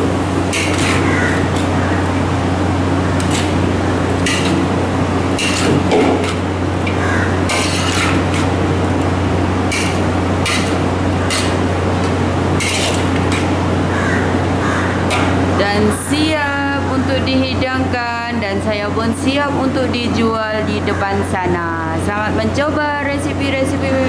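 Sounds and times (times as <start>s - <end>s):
steady low hum: 0.0s - 24.0s
metal spatula scraping a wok: 0.5s - 1.8s, 5.4s - 6.4s, 7.5s - 8.6s, 9.7s - 11.6s, 12.6s - 13.5s.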